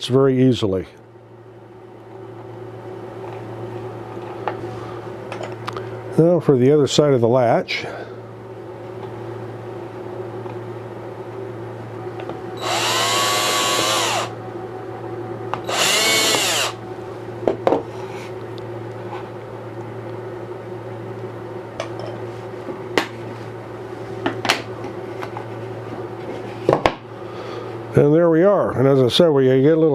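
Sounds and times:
steady low hum: 0.0s - 29.9s
cordless drill spinning: 12.6s - 14.4s, 15.6s - 16.8s.

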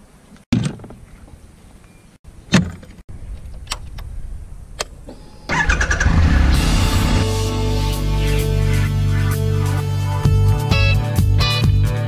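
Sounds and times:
low hum: 3.1s - 10.4s
motorcycle engine cranking and starting: 4.8s - 7.3s.

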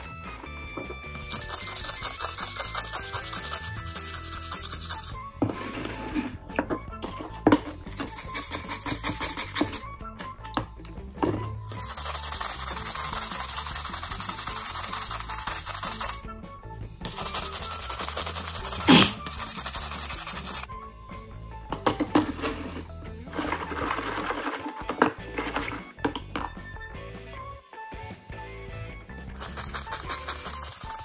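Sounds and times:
background music: 0.0s - 31.0s
brush bristles scrubbing metal: 1.2s - 5.2s, 7.9s - 9.8s, 11.6s - 16.2s, 17.1s - 20.7s, 29.4s - 31.0s.

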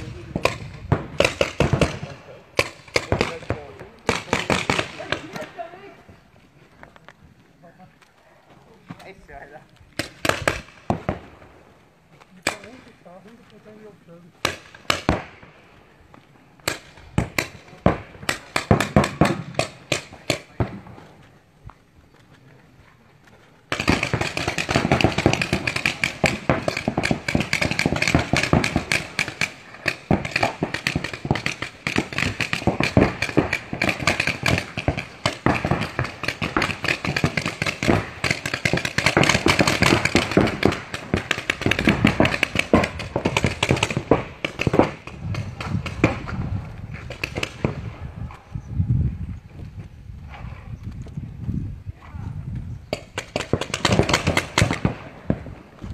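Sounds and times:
paintball markers firing: 10.0s - 11.2s, 14.4s - 15.3s, 16.6s - 20.8s, 23.7s - 46.4s, 47.0s - 47.8s, 52.9s - 55.5s.

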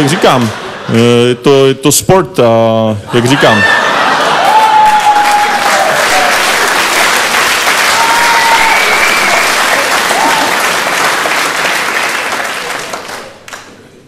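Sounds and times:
audience laughing: 0.0s - 1.3s, 3.1s - 4.7s
audience cheering: 3.3s - 13.3s
audience applauding: 4.0s - 13.8s.

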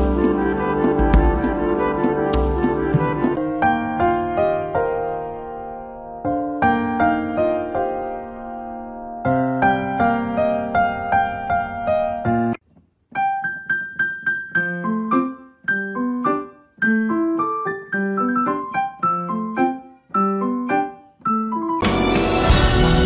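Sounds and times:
gentle piano melody: 0.0s - 22.6s
louder fuller music: 21.8s - 23.0s.

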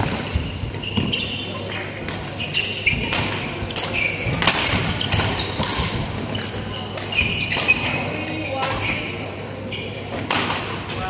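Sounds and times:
shoes squeaking on court floor: 0.0s - 10.3s
rackets hitting shuttlecock: 2.1s - 9.0s, 10.2s - 10.8s.

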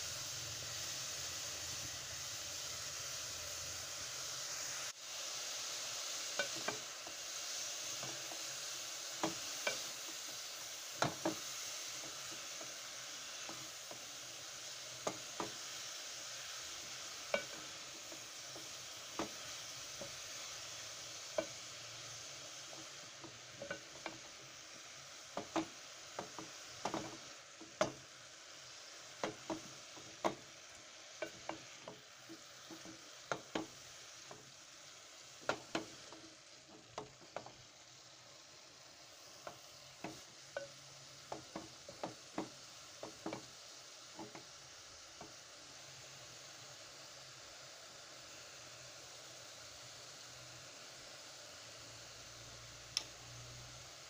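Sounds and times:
vegetables sizzling in pot: 0.0s - 54.0s
spoon knocking and scraping pot: 6.4s - 6.9s, 17.3s - 20.2s, 22.7s - 24.3s, 25.4s - 28.0s, 35.4s - 36.1s, 39.4s - 43.5s.

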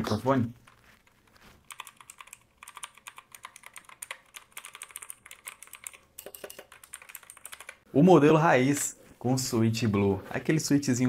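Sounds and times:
clicky mechanical keyboard typing: 1.6s - 7.8s.

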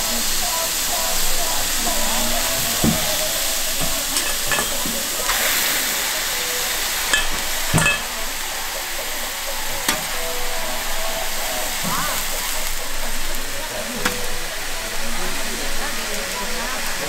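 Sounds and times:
steak sizzling in a pan: 0.0s - 17.0s
cooking utensil clinks: 3.8s - 5.1s, 7.1s - 8.2s.

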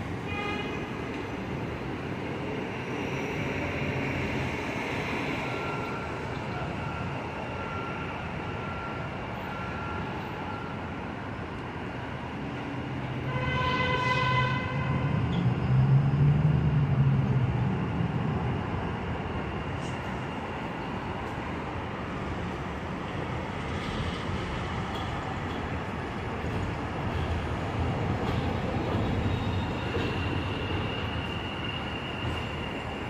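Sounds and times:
train horn blast: 0.2s - 0.9s, 13.2s - 15.2s
train running rumble: 12.5s - 33.0s.

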